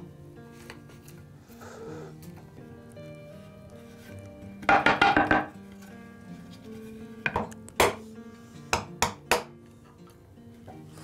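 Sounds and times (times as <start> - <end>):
wooden board knocking on workbench: 4.7 - 5.5.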